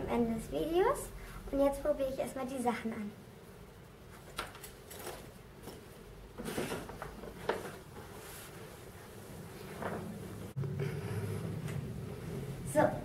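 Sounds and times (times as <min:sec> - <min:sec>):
clothing rustling: 0:04.1 - 0:10.6.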